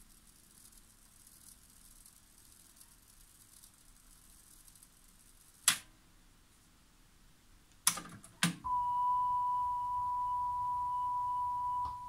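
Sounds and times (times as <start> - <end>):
faint hiss: 0.0 - 7.8.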